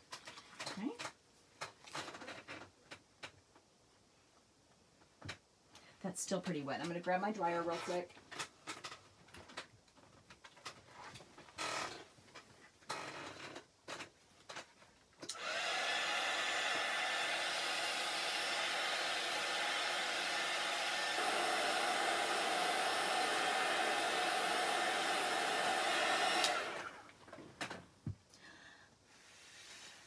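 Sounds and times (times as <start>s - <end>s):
handheld dryer blowing: 15.3s - 27.2s.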